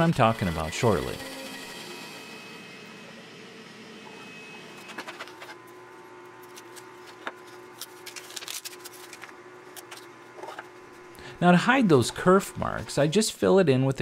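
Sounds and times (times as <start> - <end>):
paper crackling as peeled: 6.3 - 10.1.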